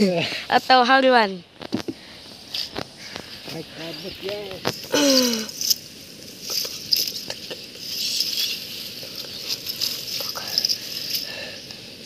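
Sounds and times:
steady high hiss: 0.0 - 12.0.

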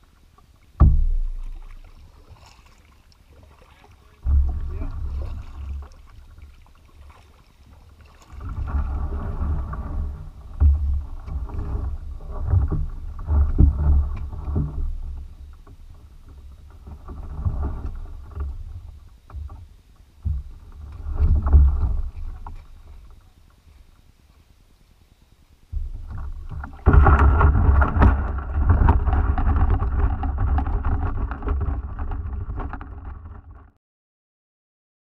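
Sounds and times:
kayak hull scraping over gravel: 0.0 - 24.5, 25.8 - 33.8
knocks: 0.8 - 1.6.

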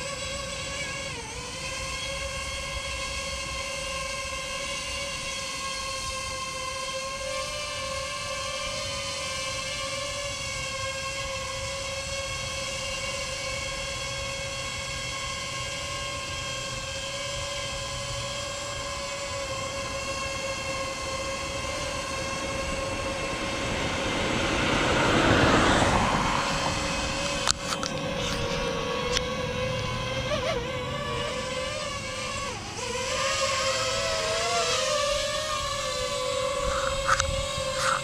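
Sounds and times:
drone propellers whining: 0.0 - 38.0
vehicle passing on road: 14.6 - 38.0.

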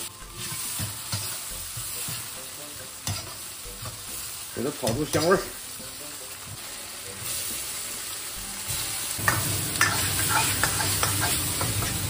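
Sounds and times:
vegetables sizzling in oil: 0.0 - 12.0
metal ladle scraping a wok: 9.3 - 12.0.

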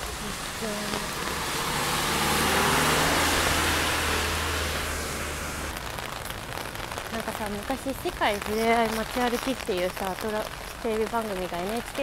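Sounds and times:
vehicle engine hum: 0.0 - 5.8
tyre hiss on wet street: 0.0 - 12.0.

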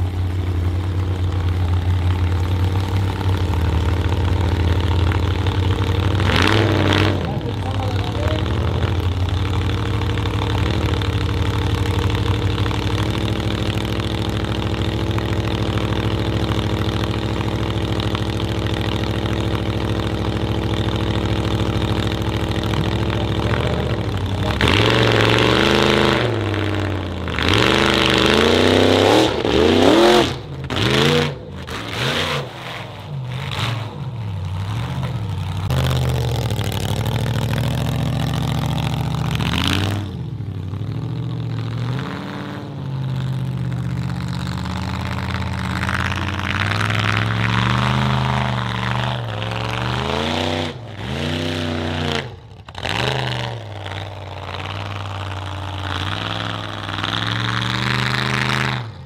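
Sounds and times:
car engine idling and revving: 0.0 - 59.0.

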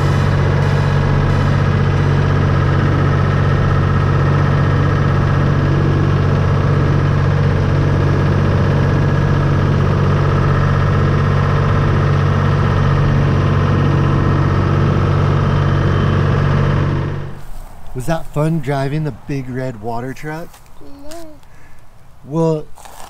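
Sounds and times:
truck engine running: 0.0 - 20.4.

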